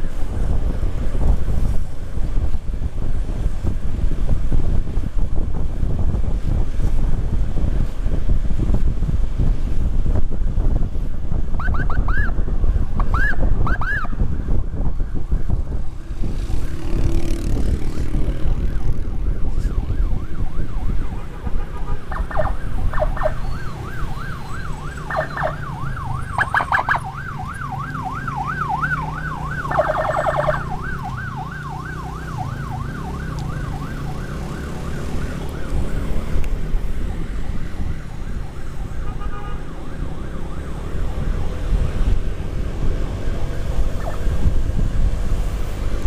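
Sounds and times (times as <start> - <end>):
wind rushing over microphone: 0.0 - 46.0
emergency siren yelping: 11.6 - 12.4, 13.0 - 14.2, 17.8 - 41.9, 43.1 - 44.6.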